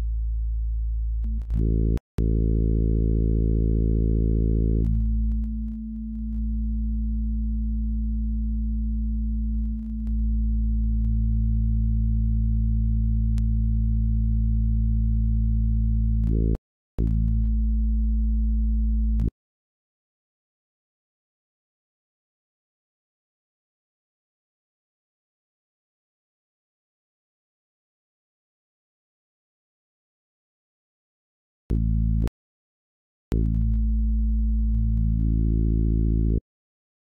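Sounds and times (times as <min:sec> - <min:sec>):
low synthesizer drone: 0:00.0 - 0:19.3, 0:33.3 - 0:36.4.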